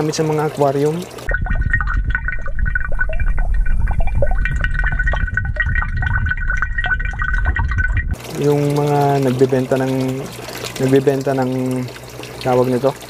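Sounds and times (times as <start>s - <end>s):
water bubbling underwater: 0.7s - 13.0s
deep rumble: 1.3s - 8.3s.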